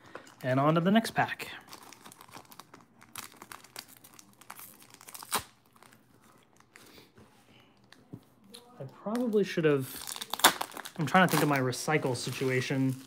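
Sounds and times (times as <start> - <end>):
foil wrapper crinkling: 1.6 - 6.0, 10.0 - 13.0
foil wrapper ripping: 1.7 - 6.0, 10.0 - 11.6.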